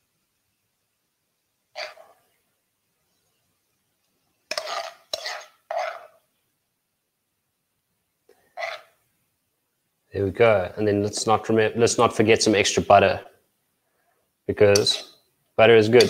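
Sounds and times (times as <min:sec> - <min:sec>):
spoon scraping a frying pan: 0:01.8 - 0:02.3, 0:04.4 - 0:06.2, 0:08.3 - 0:09.0, 0:14.6 - 0:15.3.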